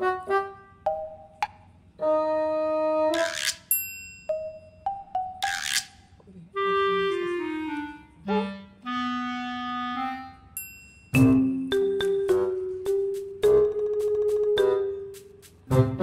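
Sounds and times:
woodwind melody: 0:00.0 - 0:00.8, 0:02.0 - 0:03.5, 0:06.5 - 0:10.6.

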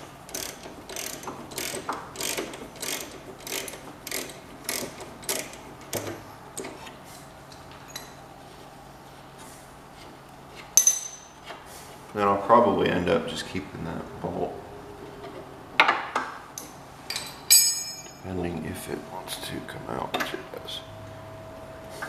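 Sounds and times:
ratchet wrench clicking: 0:00.3 - 0:06.0.

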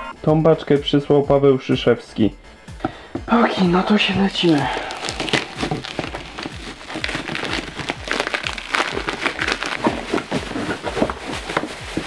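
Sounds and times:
plastic wrapping crackling: 0:03.6 - 0:12.0
blade cutting plastic film: 0:04.3 - 0:12.0.

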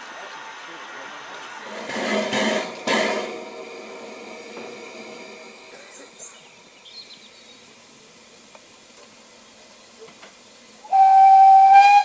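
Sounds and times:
faint hiss of steam: 0:00.0 - 0:12.0
steam whistle blast: 0:10.8 - 0:12.0.

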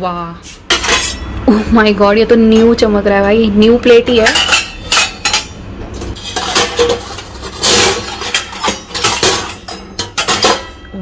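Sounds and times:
metal pots and plates clattering: 0:00.7 - 0:01.5, 0:04.1 - 0:11.0.

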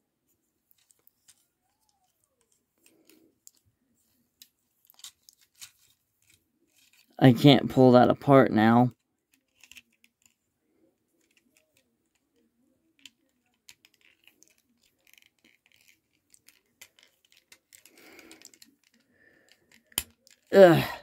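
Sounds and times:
plastic figure parts clicking: 0:04.4 - 0:07.2, 0:09.3 - 0:10.4, 0:11.2 - 0:20.5.

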